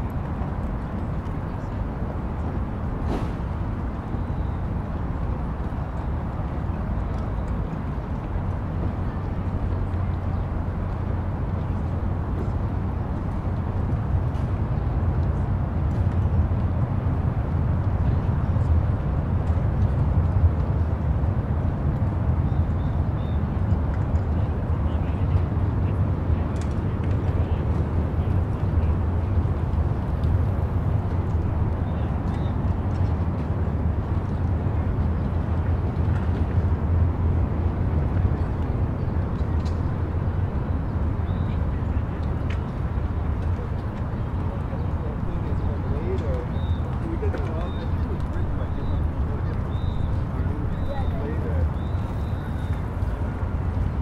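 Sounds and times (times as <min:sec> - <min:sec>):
constant wash of noise: 0:00.0 - 0:54.0
steady low rumble: 0:00.0 - 0:54.0.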